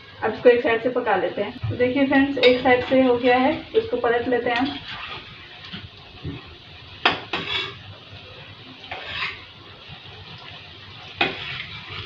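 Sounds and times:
oil frying with sizzle: 0:00.0 - 0:12.0
metal spatula scraping steel pan: 0:07.3 - 0:07.8, 0:08.9 - 0:09.5, 0:11.2 - 0:12.0.

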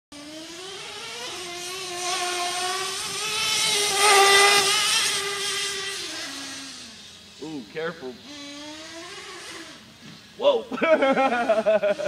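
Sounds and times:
small two-stroke engine revving: 0:00.1 - 0:12.0.

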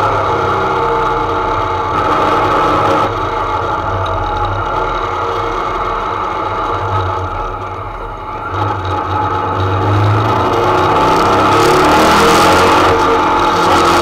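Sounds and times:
race car engine running: 0:00.0 - 0:14.0.

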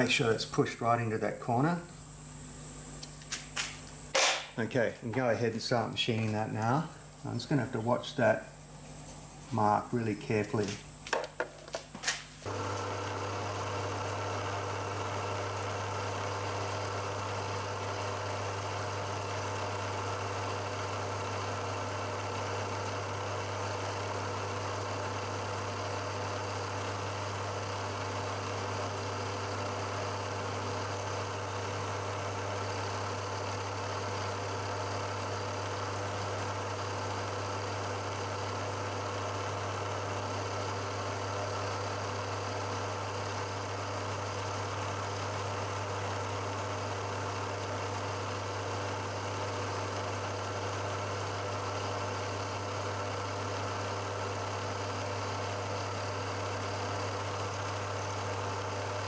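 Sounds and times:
milling machine cutting metal: 0:12.5 - 0:59.0.

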